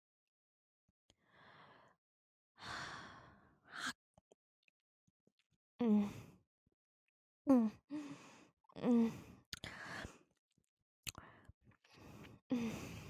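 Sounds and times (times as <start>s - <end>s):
woman sighing and moaning: 5.8s - 6.3s, 7.5s - 8.1s, 8.8s - 9.3s, 12.5s - 13.0s.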